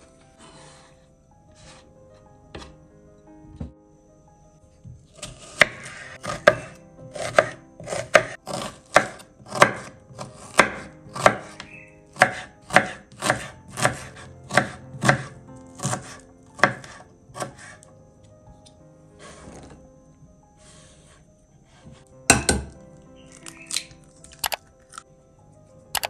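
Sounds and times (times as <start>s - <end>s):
knife chopping on wooden board: 5.2s - 17.8s.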